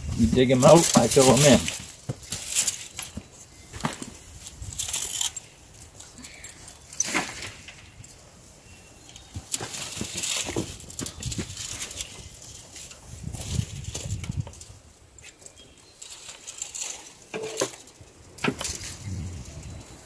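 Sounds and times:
metal chain clinking: 0:00.4 - 0:08.2, 0:15.2 - 0:19.7.

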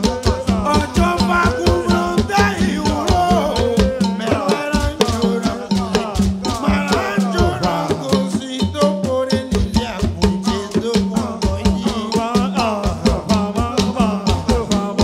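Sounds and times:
fast percussion beat: 0:00.0 - 0:15.0
singing: 0:00.0 - 0:15.0
bass line: 0:00.3 - 0:08.3.

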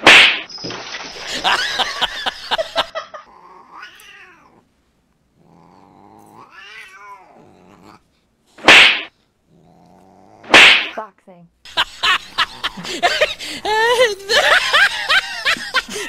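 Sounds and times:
cat yowling: 0:03.6 - 0:04.6, 0:06.4 - 0:07.4
cat hissing: 0:05.5 - 0:08.0, 0:08.6 - 0:11.0.

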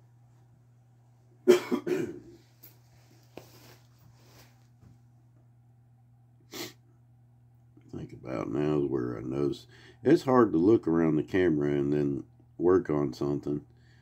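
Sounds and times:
faint steady hum: 0:00.0 - 0:14.0
man coughing: 0:01.4 - 0:02.4.

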